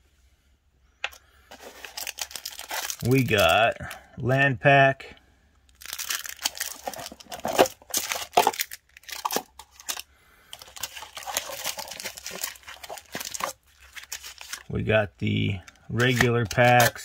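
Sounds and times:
plastic wrapping crinkling: 0:01.5 - 0:03.9, 0:05.7 - 0:14.7, 0:15.7 - 0:17.0.

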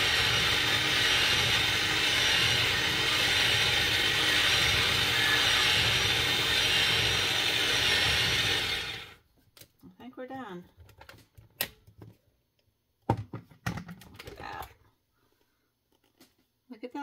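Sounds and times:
electric chopper running: 0:00.0 - 0:09.2.

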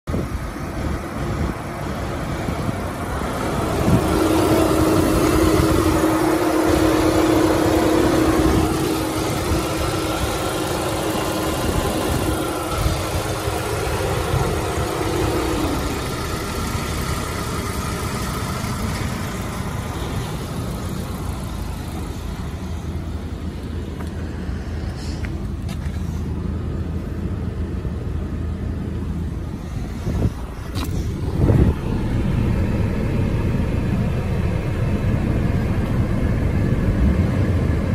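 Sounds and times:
car engine idling: 0:00.0 - 0:37.9
steady tone: 0:02.5 - 0:16.8.

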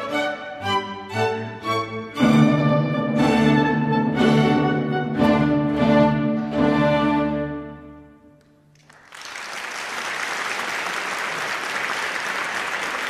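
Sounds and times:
audience applauding: 0:08.7 - 0:13.0.

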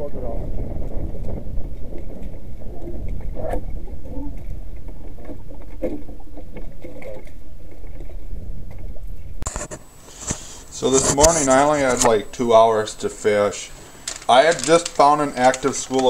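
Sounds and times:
wind rumbling on microphone: 0:00.0 - 0:12.3.

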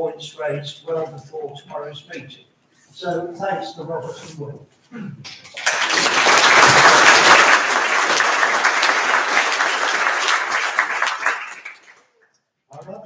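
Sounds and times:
audience applauding: 0:05.5 - 0:12.1.

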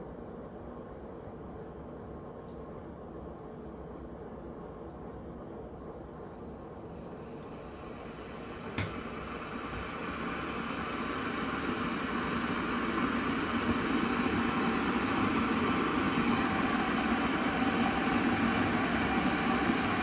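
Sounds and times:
electric kettle heating water: 0:06.8 - 0:20.0.

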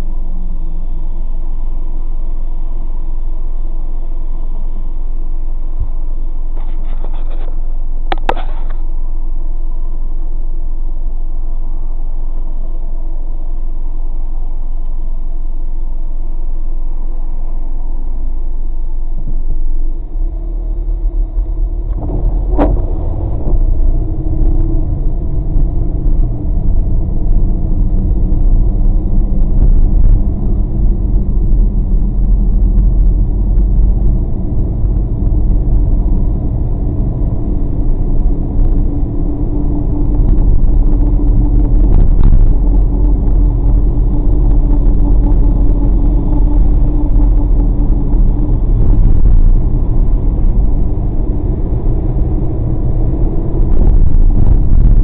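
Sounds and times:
car driving on wet pavement: 0:19.3 - 0:55.0.

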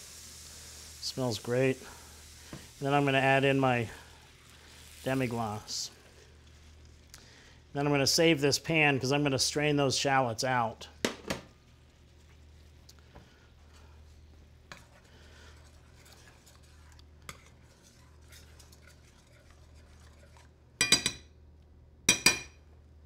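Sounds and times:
low steady hum: 0:00.4 - 0:23.0
metal utensil scraping a pan: 0:14.7 - 0:21.2.

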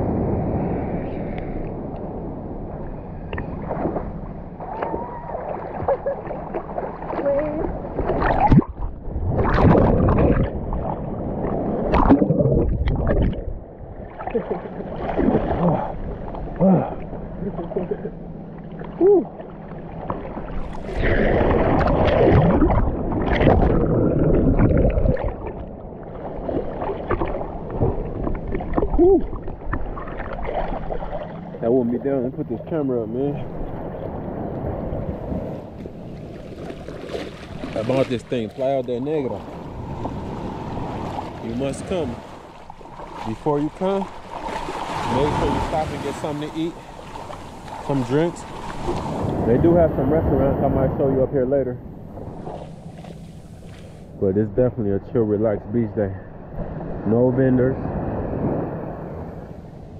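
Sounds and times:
seawater sloshing and splashing: 0:03.3 - 0:16.7, 0:17.4 - 0:31.8, 0:33.4 - 0:49.8, 0:52.0 - 0:54.2
loud splashes: 0:04.6 - 0:13.5, 0:20.6 - 0:25.6, 0:36.2 - 0:38.7, 0:39.4 - 0:49.7
muffled underwater gurgling: 0:04.6 - 0:35.8.

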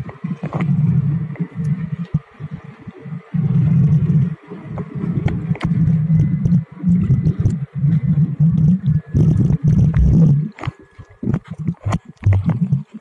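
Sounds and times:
underwater rumbling and bubbling: 0:00.0 - 0:13.0
clicks and pops: 0:04.8 - 0:07.6, 0:08.4 - 0:13.0.

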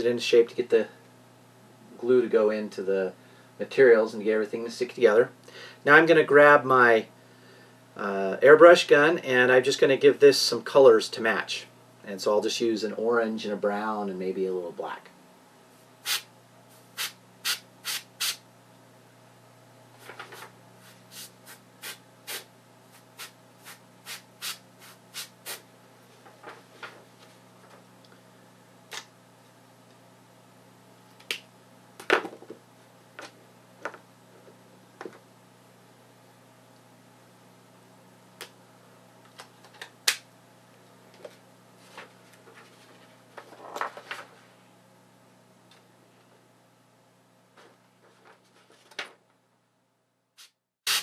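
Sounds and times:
low electrical hum: 0:00.0 - 0:51.0
airbrush spray puffs: 0:16.0 - 0:18.4, 0:20.8 - 0:25.6, 0:50.4 - 0:51.0.

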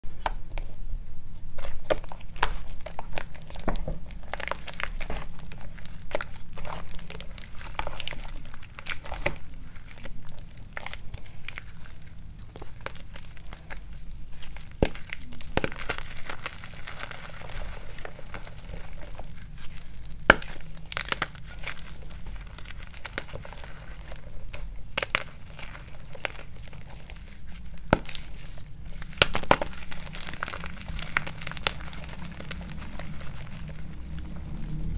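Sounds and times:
chalk block cracking and crumbling: 0:01.4 - 0:34.9
hands squishing wet chalk paste: 0:01.6 - 0:34.9.

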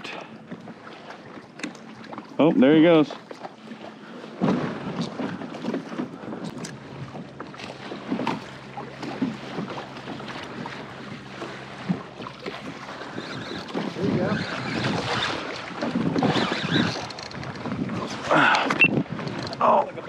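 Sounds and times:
water splashing against kayak hull: 0:00.0 - 0:20.0
wind buffeting microphone: 0:04.2 - 0:20.0.

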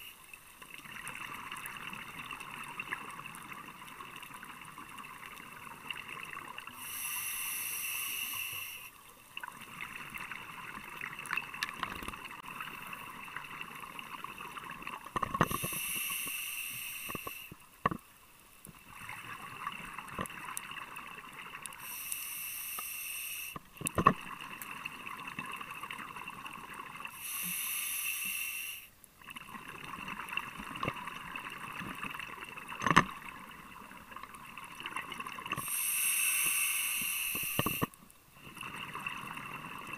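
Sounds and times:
regulator hiss: 0:06.8 - 0:09.0, 0:15.5 - 0:17.6, 0:21.8 - 0:23.7, 0:27.1 - 0:29.0, 0:35.6 - 0:38.0
exhaled bubbles underwater: 0:37.3 - 0:39.9.

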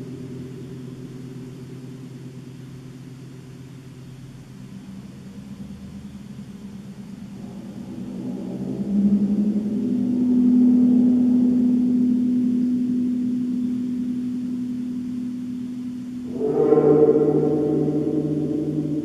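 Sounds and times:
large gong ringing deep tone: 0:05.6 - 0:19.0
fuller gong ringing with overtones: 0:07.1 - 0:19.0.

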